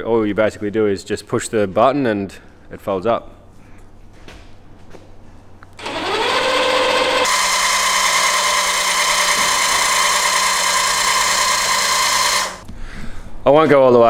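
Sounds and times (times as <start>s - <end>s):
electric actuators whining: 5.8s - 12.6s.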